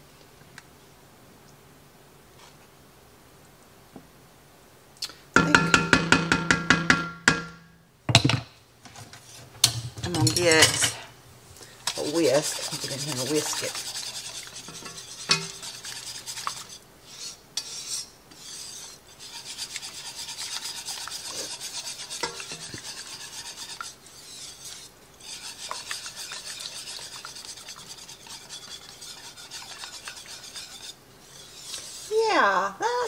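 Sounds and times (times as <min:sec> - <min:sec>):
wire whisk scraping pot: 0:09.2 - 0:11.0, 0:11.8 - 0:32.3.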